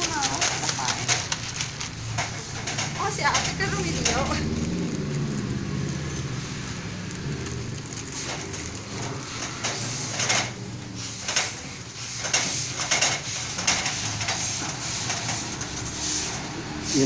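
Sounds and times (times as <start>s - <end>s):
steam iron hissing: 9.3s - 17.0s.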